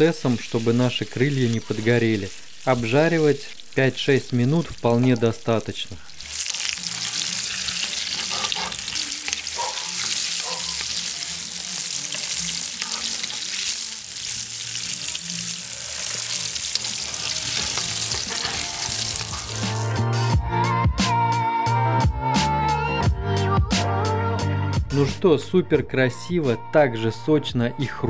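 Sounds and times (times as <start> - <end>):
wings deep-frying in oil: 0.0 - 20.0
music: 6.3 - 28.0.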